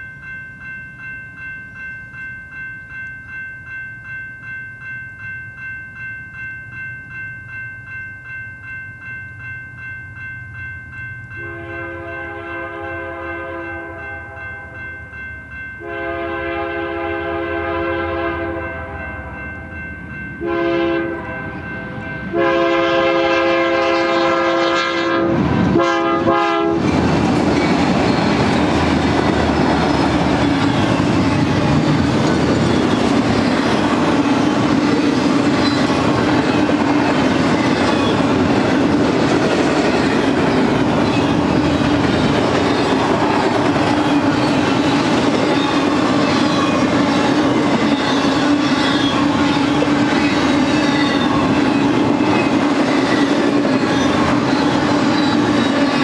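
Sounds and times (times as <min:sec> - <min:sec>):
diesel locomotive passing: 0:00.0 - 0:56.0
locomotive horn blasts: 0:11.4 - 0:14.8, 0:15.8 - 0:19.1, 0:20.4 - 0:21.6, 0:22.3 - 0:26.9
train wheels rumbling and clacking: 0:20.0 - 0:56.0.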